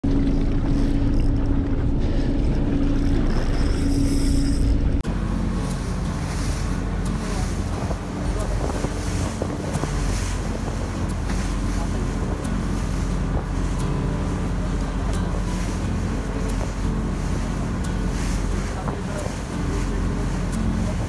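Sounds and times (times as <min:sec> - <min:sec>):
boat engine humming: 0:00.0 - 0:21.0
wind buffeting microphone: 0:00.0 - 0:21.0
wake spray rushing: 0:05.1 - 0:21.0.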